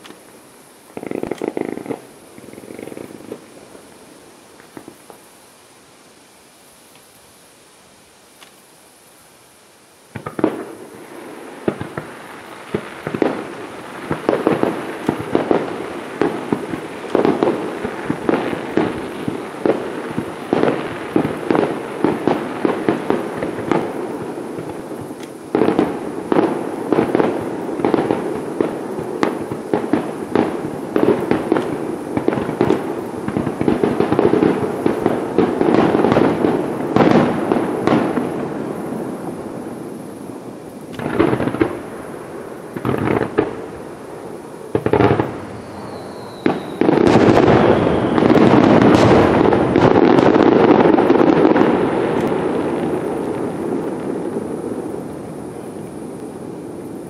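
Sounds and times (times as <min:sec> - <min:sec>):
fireworks shells bursting: 0:00.0 - 0:05.3, 0:10.1 - 0:39.2, 0:40.7 - 0:56.4
fireworks crackle: 0:00.0 - 0:57.0.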